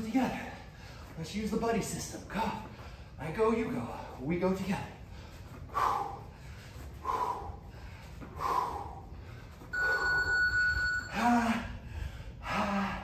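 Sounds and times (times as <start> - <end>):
man breathing out hard: 5.1 - 10.3
electronic timer beep: 9.7 - 11.2.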